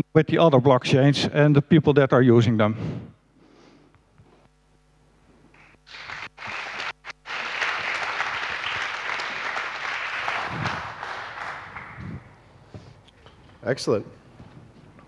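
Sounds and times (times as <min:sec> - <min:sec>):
audience applauding: 0:05.6 - 0:12.5.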